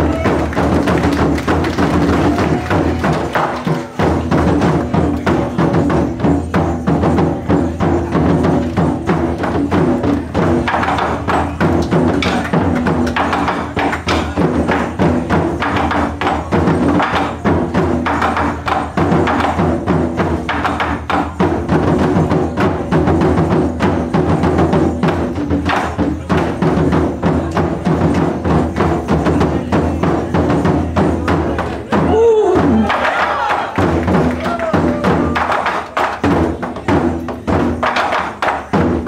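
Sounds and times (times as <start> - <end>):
voice calling out: 32.1 - 33.7.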